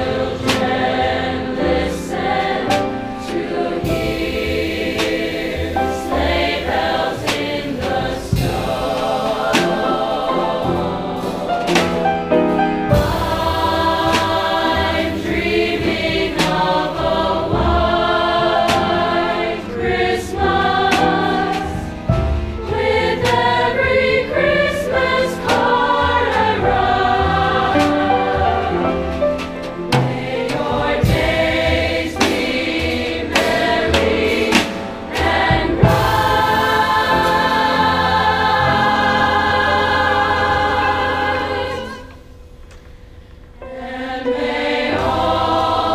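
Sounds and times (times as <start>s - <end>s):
choir singing: 0.0s - 42.4s, 43.6s - 45.9s
instrumental accompaniment: 0.0s - 45.9s.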